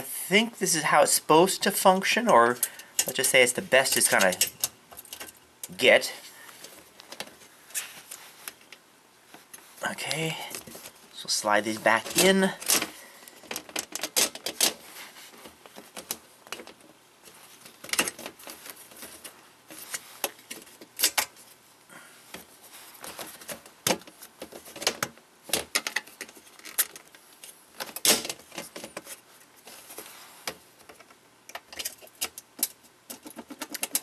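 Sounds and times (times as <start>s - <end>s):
plastic parts clicking and knocking: 12.0s - 14.8s, 17.6s - 21.4s, 22.3s - 29.2s, 30.5s - 34.0s.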